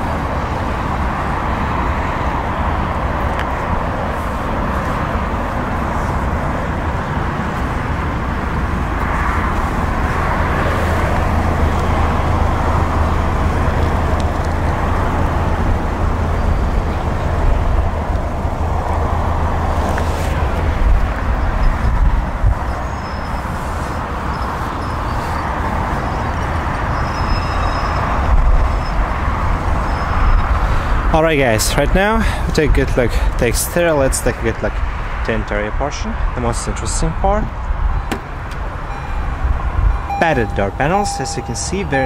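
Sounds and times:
car engine idling: 0:00.0 - 0:21.6, 0:38.0 - 0:42.0.

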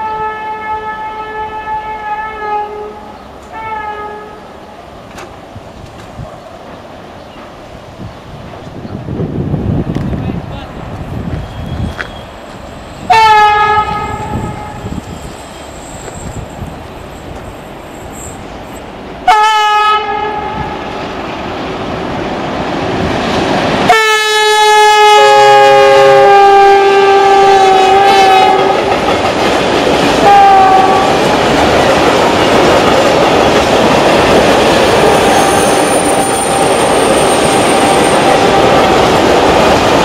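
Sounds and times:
diesel locomotive horn blasts: 0:00.0 - 0:04.5, 0:13.1 - 0:15.0, 0:19.2 - 0:20.8, 0:23.9 - 0:28.9, 0:30.2 - 0:31.2
freight train clattering over rail joints: 0:05.0 - 0:07.7, 0:27.9 - 0:40.0.

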